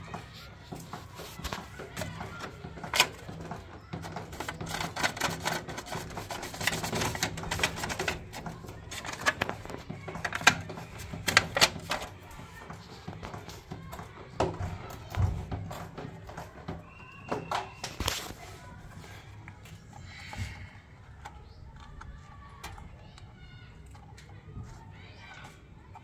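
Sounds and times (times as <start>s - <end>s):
plastic clicks and rattles: 0.0s - 26.0s.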